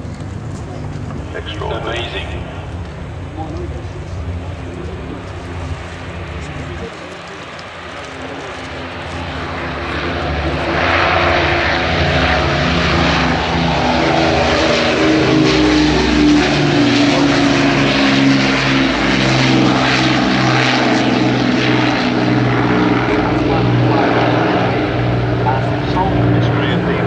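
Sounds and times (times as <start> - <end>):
propeller aircraft passing overhead: 0.0 - 27.0.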